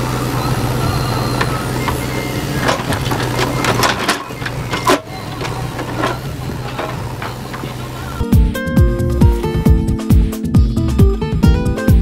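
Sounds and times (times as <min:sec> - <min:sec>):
diesel engine running under load: 0:00.0 - 0:10.4
stones knocking and grinding: 0:01.4 - 0:07.8.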